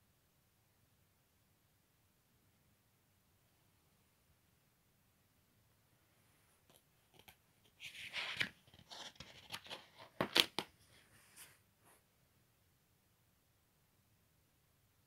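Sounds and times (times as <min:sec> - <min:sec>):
paper rustling and crinkling: 0:07.1 - 0:11.6.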